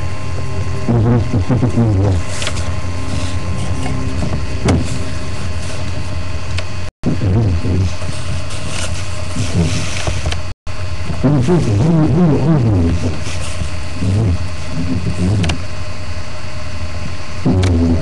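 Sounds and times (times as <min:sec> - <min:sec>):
wavering sliding melody line: 0:00.0 - 0:06.9
low steady drone: 0:00.0 - 0:18.0.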